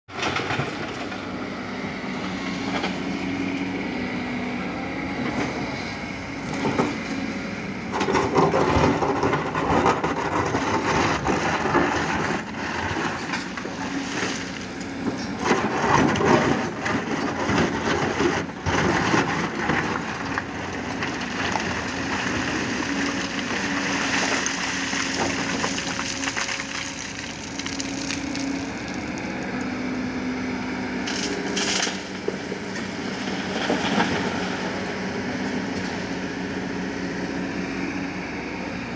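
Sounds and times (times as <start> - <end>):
excavator diesel engine: 0.1 - 38.9
rock grinding and scraping: 8.0 - 29.6.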